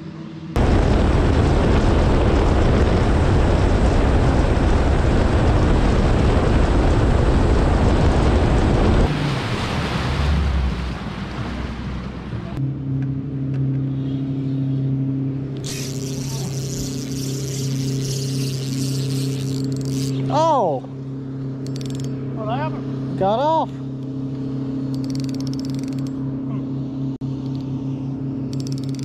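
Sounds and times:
low steady hum: 0.0s - 29.0s
outboard motor running fast: 0.5s - 29.0s
wind on microphone: 0.6s - 9.8s
wake splashing: 8.0s - 12.6s.

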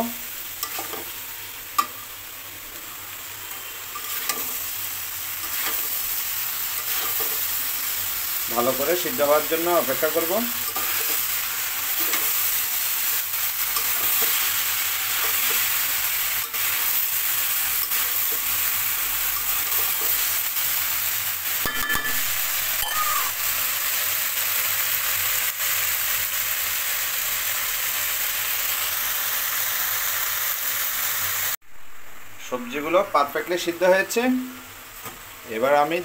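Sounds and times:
vegetables sizzling in a wok: 0.0s - 36.0s.

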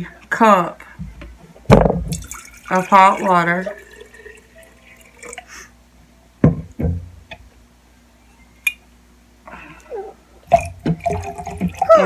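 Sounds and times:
containers thumping on a table: 1.7s - 2.2s, 6.4s - 7.1s.

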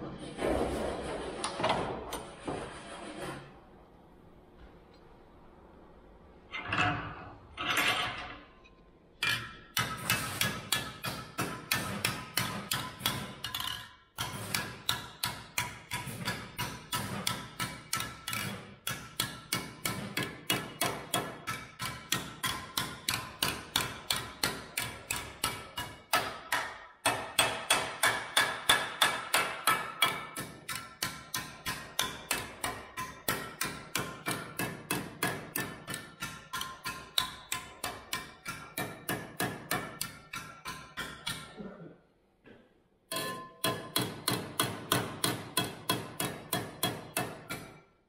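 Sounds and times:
hammer striking sheet steel: 9.2s - 41.6s, 43.1s - 48.0s.

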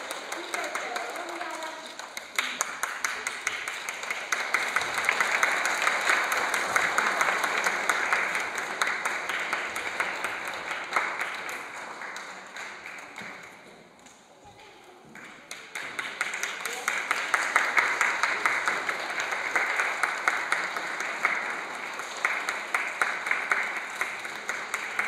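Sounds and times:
audience applauding: 0.0s - 13.8s, 15.2s - 25.0s.

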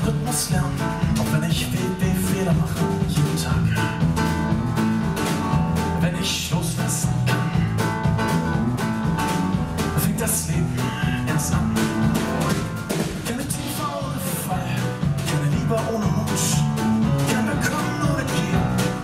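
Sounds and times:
drum beat: 0.0s - 19.0s
electric bass guitar: 0.0s - 19.0s
piano: 0.0s - 19.0s.

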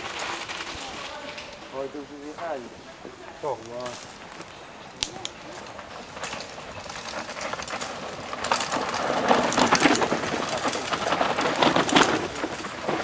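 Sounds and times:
bike tyres rolling over dirt: 0.0s - 13.0s
rapid clicking and rattling: 6.1s - 13.0s.

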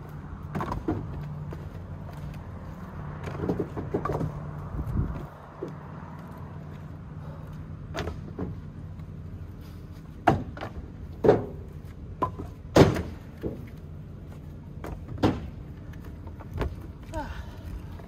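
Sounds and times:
steady low hum: 0.0s - 18.0s
firewood knocking into trailer: 3.2s - 4.4s, 10.2s - 13.7s, 14.8s - 15.6s.

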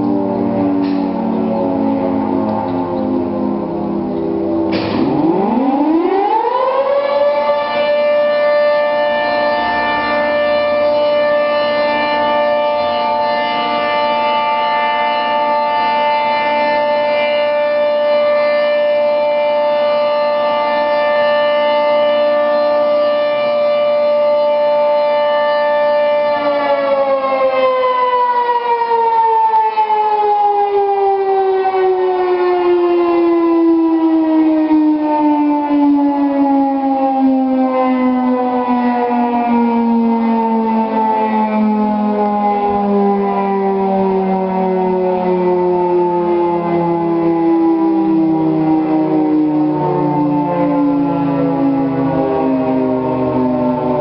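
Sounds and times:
three-tone warning siren: 0.0s - 54.0s.

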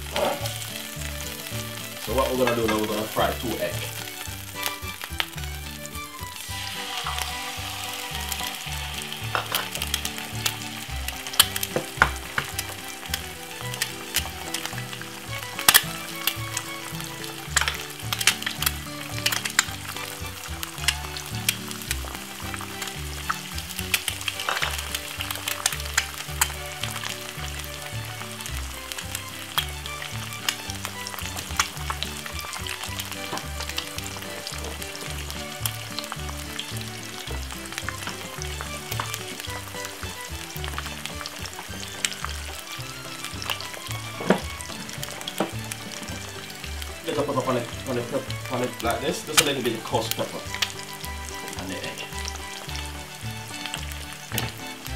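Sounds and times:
eggs sizzling in a pan: 0.0s - 54.9s
fat crackling and spitting: 0.0s - 54.9s.

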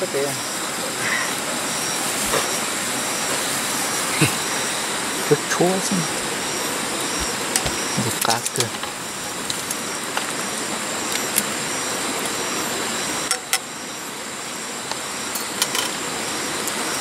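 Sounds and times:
campfire hiss: 0.0s - 17.0s
fire crackles and pops: 6.8s - 12.4s.

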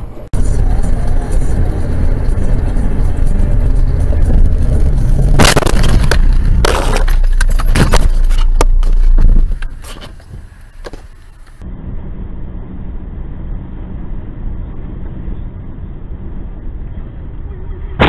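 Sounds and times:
car road and engine noise: 0.0s - 18.0s
car crash impact: 5.2s - 9.5s.

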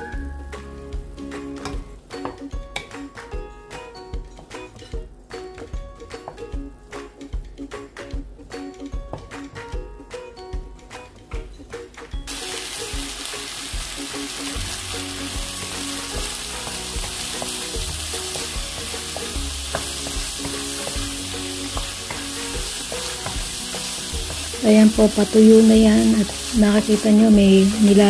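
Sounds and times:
pork sizzling in a pan: 12.3s - 28.0s.

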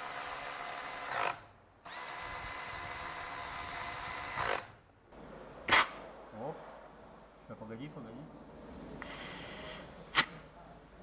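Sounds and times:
cordless drill whirring: 0.0s - 4.7s.

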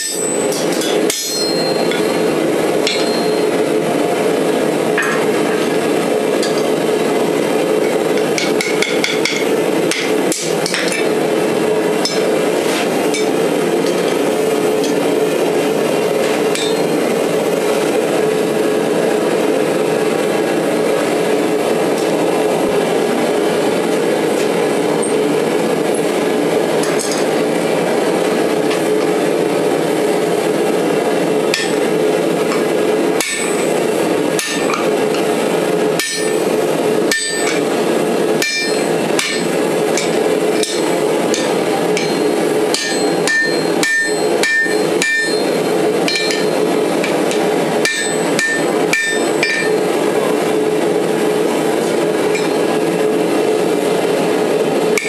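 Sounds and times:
hammer striking steel on anvil: 0.0s - 3.6s, 5.0s - 5.8s, 6.4s - 6.7s, 8.2s - 11.2s, 12.0s - 12.3s, 16.5s - 16.9s, 31.5s - 31.8s, 32.5s - 33.6s, 34.4s - 35.3s, 36.0s - 36.5s, 37.1s - 37.8s, 38.4s - 49.8s, 52.3s - 52.6s.

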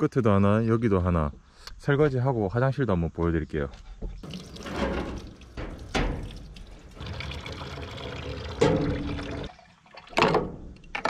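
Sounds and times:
dishes clattering: 4.2s - 6.8s
tap water running and splashing: 4.2s - 10.4s.

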